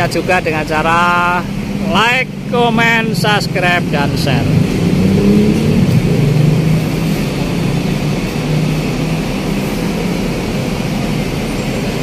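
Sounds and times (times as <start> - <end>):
bus engine droning: 0.0 - 12.0
traffic noise: 0.0 - 12.0.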